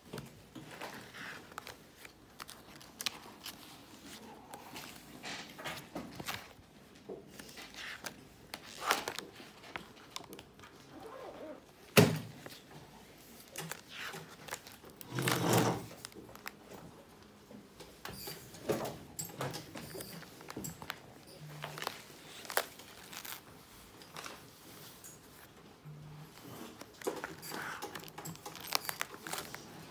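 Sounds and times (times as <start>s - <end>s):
sketchbook pages turning: 0.2s - 6.6s, 7.2s - 10.8s, 13.2s - 16.8s, 19.6s - 25.5s, 26.2s - 29.9s.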